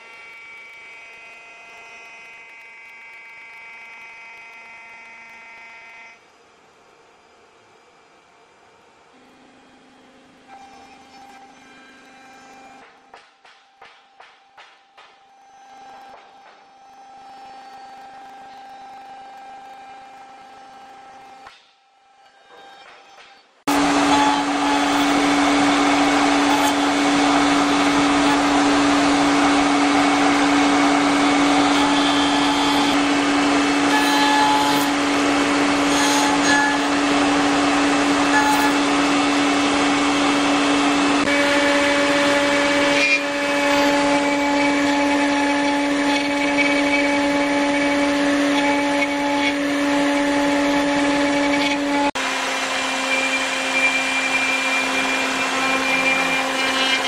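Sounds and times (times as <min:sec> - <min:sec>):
router bit cutting wood: 0:00.0 - 0:06.2, 0:23.7 - 0:57.0
router spindle whine: 0:00.0 - 0:57.0.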